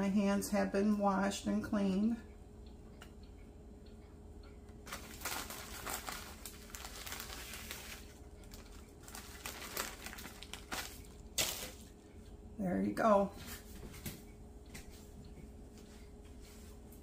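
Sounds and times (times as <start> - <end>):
plastic bag crinkling: 4.9 - 12.0.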